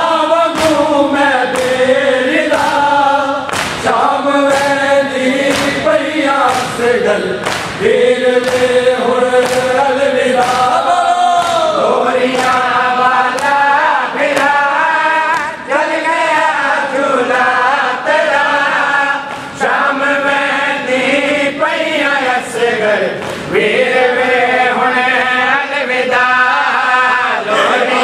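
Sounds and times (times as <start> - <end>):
men chanting a lament: 0.0 - 28.0
hands striking chest: 3.5 - 3.9, 8.4 - 8.8, 9.4 - 9.8, 11.4 - 13.6.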